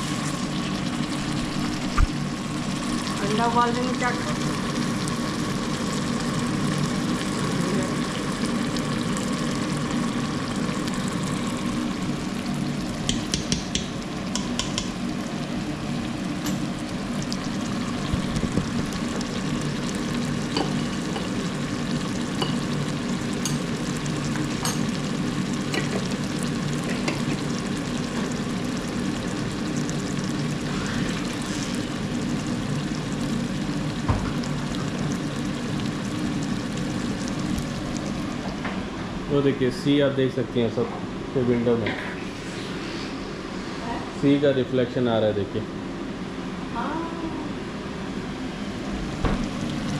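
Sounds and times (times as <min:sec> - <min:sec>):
sauce sizzling in oil: 0:00.0 - 0:38.6, 0:48.8 - 0:49.9.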